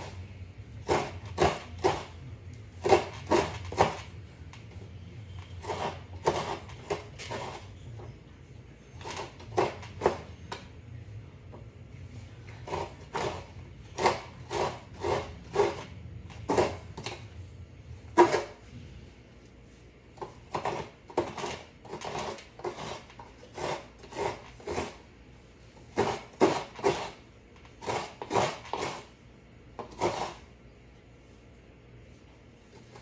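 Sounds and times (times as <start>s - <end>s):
coconut rasping on grater: 5.5s - 7.7s, 12.7s - 15.9s, 20.2s - 25.0s, 25.9s - 27.2s, 27.8s - 29.2s, 29.8s - 30.5s.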